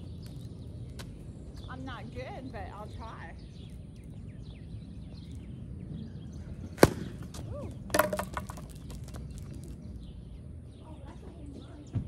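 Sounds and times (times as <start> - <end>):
bat clattering on pavement: 6.5 - 10.1
plastic bat hitting ball: 6.8 - 9.3.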